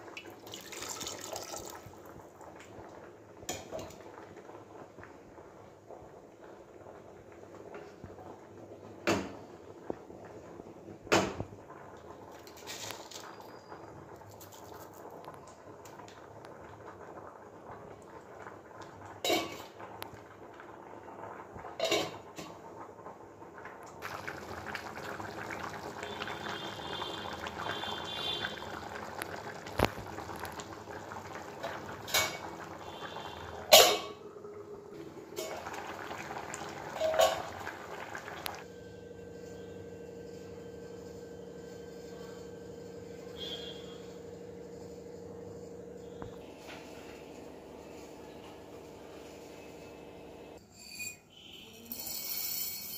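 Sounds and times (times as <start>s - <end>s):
curry bubbling in a pan: 0.0s - 38.7s
steel lid clanking against pan: 33.7s - 34.2s.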